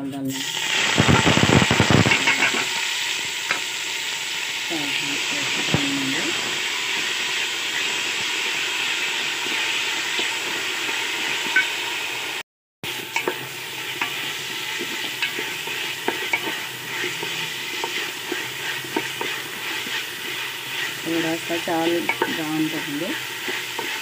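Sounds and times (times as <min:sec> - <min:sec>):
rice sizzling in a pot: 0:00.0 - 0:24.0
spatula scraping a metal pot: 0:02.0 - 0:02.7, 0:13.1 - 0:24.0.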